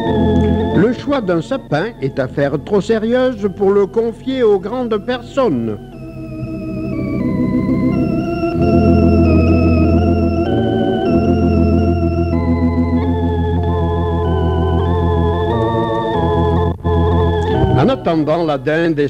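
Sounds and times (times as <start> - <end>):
organ playing slow chords: 0.0 - 19.0.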